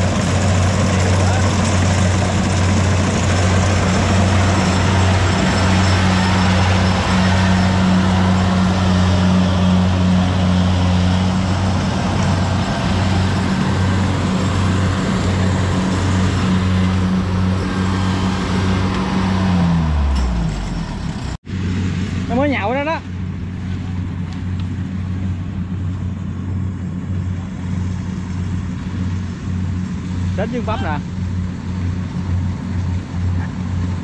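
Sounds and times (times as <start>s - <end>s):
combine harvester engine hum: 0.0s - 34.0s
dense rushing noise: 0.0s - 34.0s.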